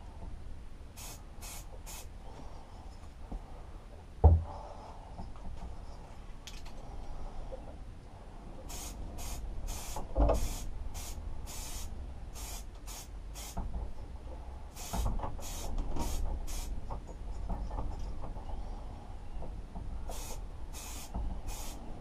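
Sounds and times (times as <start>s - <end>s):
spray paint can hissing: 1.0s - 2.1s, 8.7s - 13.6s, 14.7s - 16.7s, 20.1s - 21.9s
low thump: 4.2s - 4.6s.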